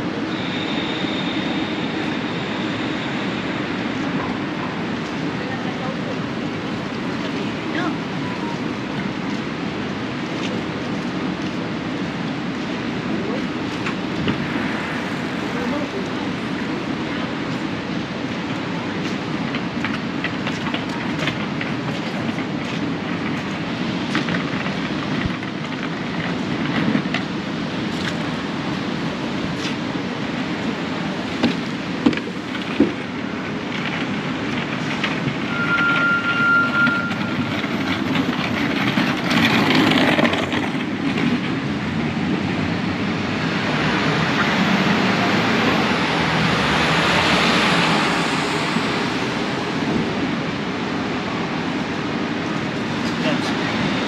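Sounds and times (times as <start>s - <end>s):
traffic passing: 0.0s - 54.0s
short steady beep: 35.5s - 37.4s.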